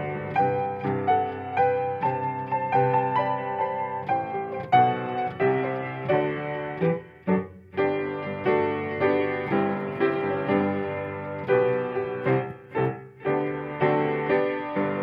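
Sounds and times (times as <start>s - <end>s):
piano chords: 0.0s - 15.0s.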